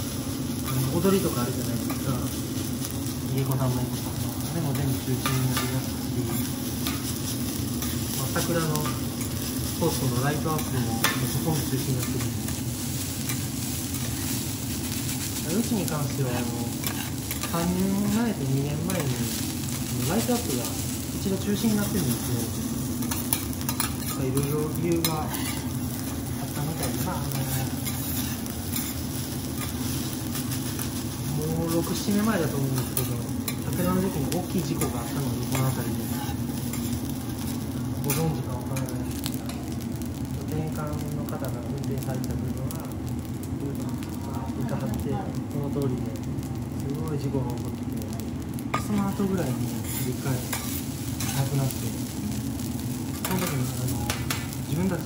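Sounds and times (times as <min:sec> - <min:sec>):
rice sizzling on a griddle: 0:00.0 - 0:55.0
metal spatulas scraping a griddle: 0:16.4 - 0:17.7, 0:23.0 - 0:26.2, 0:26.8 - 0:31.0, 0:49.7 - 0:51.5, 0:53.2 - 0:54.6.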